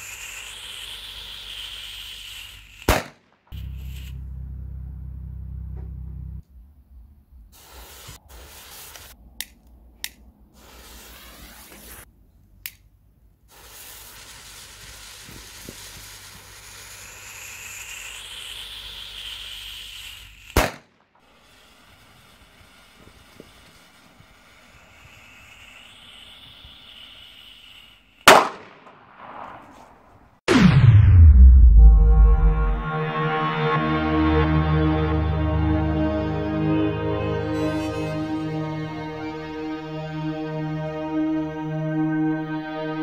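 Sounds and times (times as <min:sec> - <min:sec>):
firecracker fuses sizzling: 0:00.0 - 0:04.3, 0:07.5 - 0:12.1, 0:13.4 - 0:30.0, 0:35.3 - 0:40.2
firecracker bangs: 0:02.9 - 0:04.1, 0:20.6 - 0:20.9, 0:28.2 - 0:32.8.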